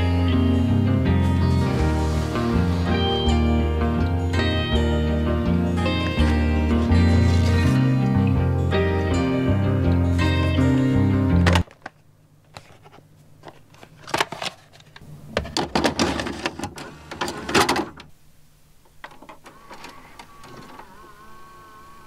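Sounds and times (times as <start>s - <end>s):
faint motor whine: 12.4s - 22.0s.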